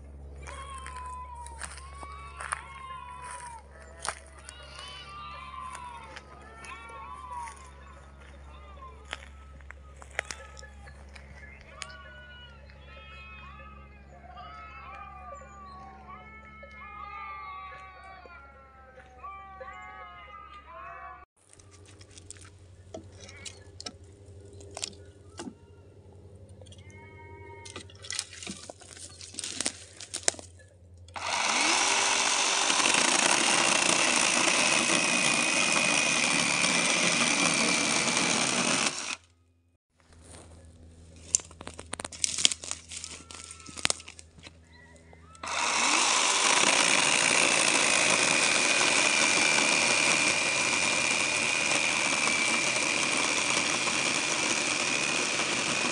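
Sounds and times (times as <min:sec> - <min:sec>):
chainsaw cutting wood: 0:31.1 - 0:39.3, 0:45.4 - 0:55.9.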